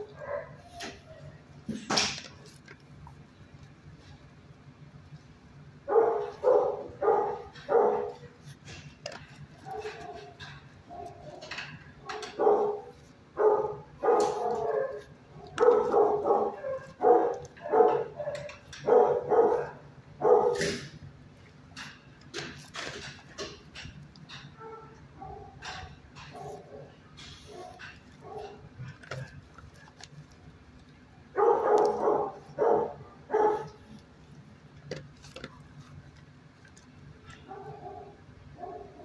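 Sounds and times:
dogs barking: 0.0 - 1.4, 5.8 - 8.6, 9.5 - 21.0, 24.3 - 29.3, 31.3 - 34.0, 37.3 - 39.0.

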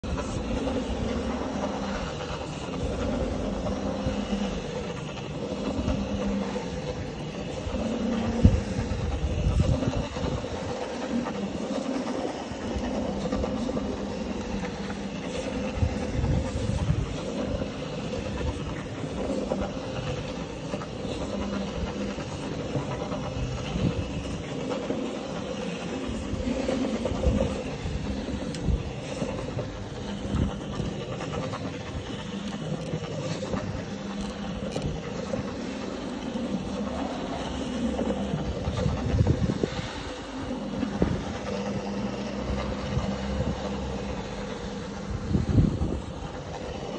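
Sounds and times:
floor scrubber motor hum: 0.0 - 46.9
scrubber brush rumbling on rug: 0.0 - 46.9.

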